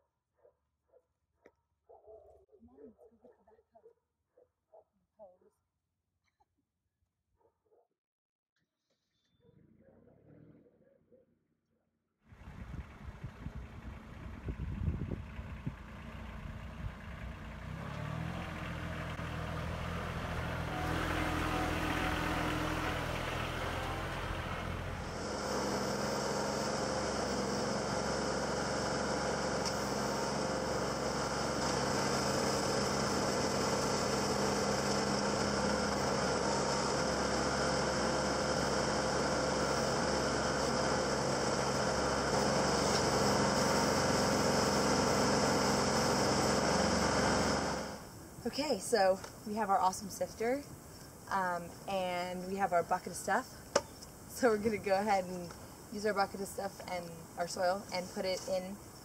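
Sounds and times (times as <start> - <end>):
tractor engine running: 12.3 - 48.6.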